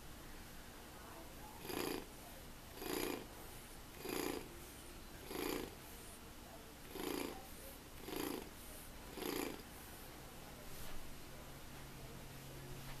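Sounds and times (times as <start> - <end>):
toy electronic purr: 1.6 - 2.1, 2.7 - 3.3, 3.9 - 4.5, 5.2 - 5.8, 6.9 - 7.4, 8.0 - 8.5, 9.1 - 9.6.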